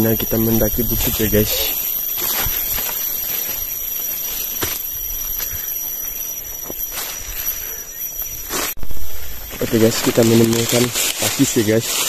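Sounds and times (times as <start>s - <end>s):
insects droning: 0.0s - 12.0s
footsteps crunching through leaves: 6.5s - 12.0s.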